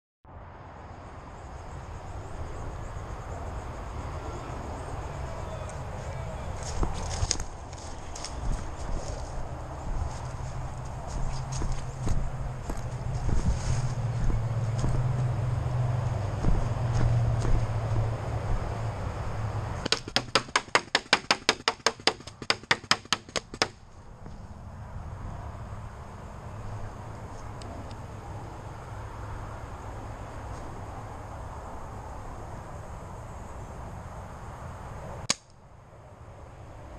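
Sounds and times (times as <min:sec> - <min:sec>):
faint high insect chirping: 0:00.3 - 0:20.0, 0:23.8 - 0:36.9
outdoor rumble and hiss: 0:00.3 - 0:36.9
steady noise: 0:00.7 - 0:26.4
paintball pistol rapid shots: 0:19.9 - 0:23.8.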